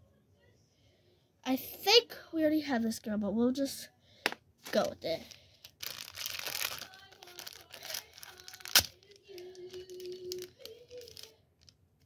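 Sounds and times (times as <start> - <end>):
plastic wrapper tearing and crinkling: 4.6 - 11.8.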